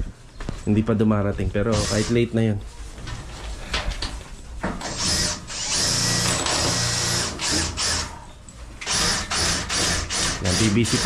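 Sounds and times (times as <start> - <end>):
electric power drill running: 1.7 - 2.1, 4.8 - 8.2, 8.8 - 11.0.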